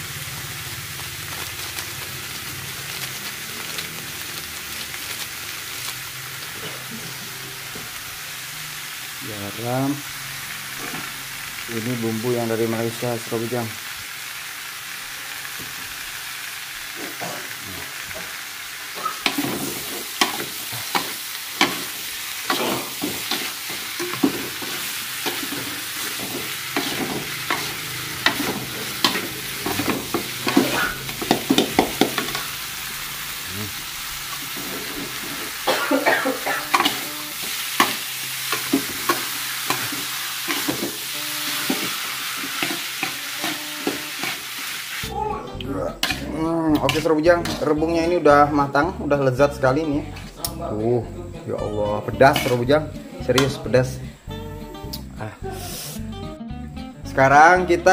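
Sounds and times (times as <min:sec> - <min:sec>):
food frying with hiss: 0:00.0 - 0:56.2
metal spatula scraping wok: 0:18.9 - 0:32.7, 0:34.4 - 0:35.7, 0:36.6 - 0:45.1, 0:46.0 - 0:48.2, 0:52.2 - 0:53.7.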